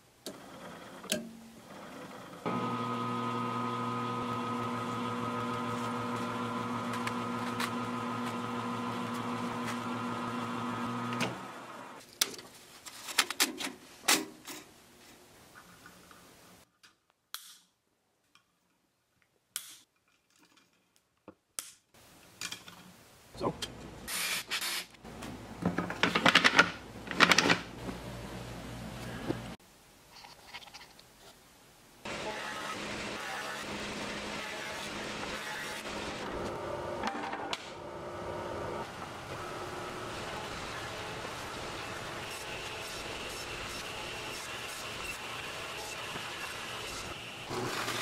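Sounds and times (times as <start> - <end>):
metal lathe humming and whining: 2.4 - 12.0.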